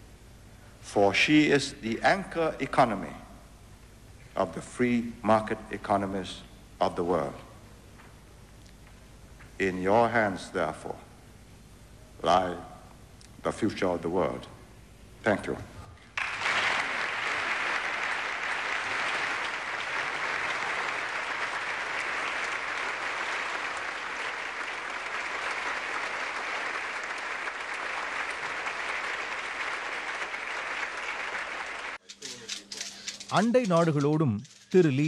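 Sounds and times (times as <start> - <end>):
large audience applauding: 16.2 - 32.0.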